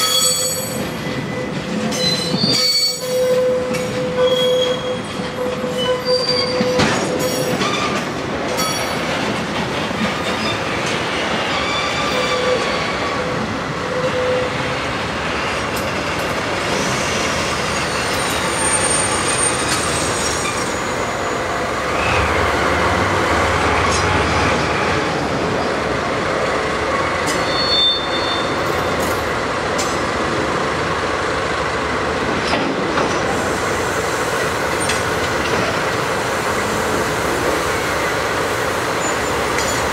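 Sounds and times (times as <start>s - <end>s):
wheel squeals: 0.0s - 8.0s, 27.3s - 28.6s
locomotive engines rumbling: 0.0s - 39.9s
train wheels clattering on rails: 0.0s - 39.9s.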